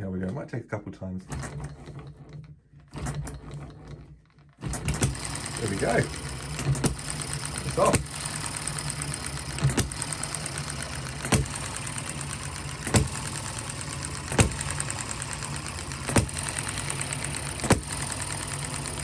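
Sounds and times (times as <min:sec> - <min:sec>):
flywheel mechanical ticking: 0:04.6 - 0:19.0
gas engine firing pops: 0:06.6 - 0:18.9.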